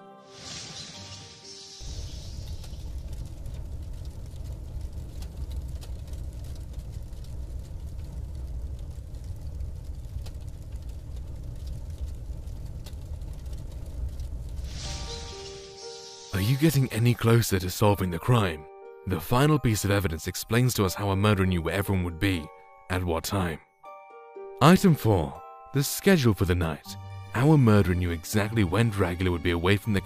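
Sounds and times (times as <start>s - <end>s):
faint crackles: 0.4s - 16.4s
low rumbling ambience: 1.8s - 17.2s
music note: 14.8s - 17.4s.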